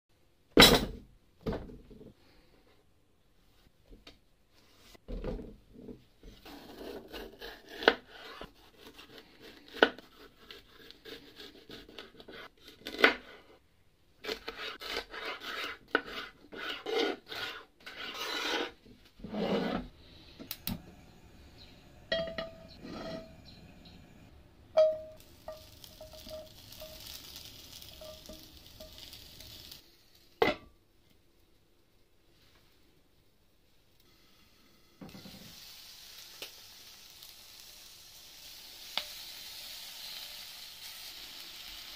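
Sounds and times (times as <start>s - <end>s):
vegetables scraping across wood: 14.2s - 20.3s, 22.6s - 23.6s
glass lid clanking on pan: 22.1s - 23.3s.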